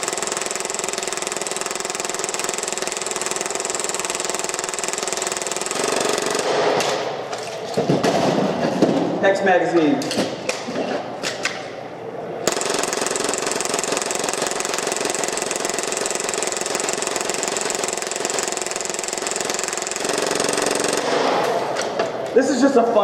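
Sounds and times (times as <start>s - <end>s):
airsoft pistol full-auto burst: 0.0s - 6.8s, 12.5s - 21.4s.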